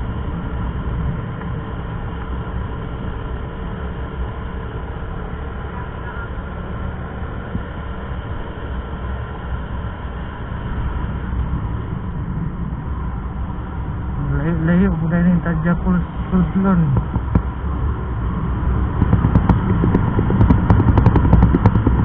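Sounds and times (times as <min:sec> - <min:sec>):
wind rumble on microphone: 0:00.0 - 0:22.0
motorcycle engine running: 0:14.0 - 0:22.0.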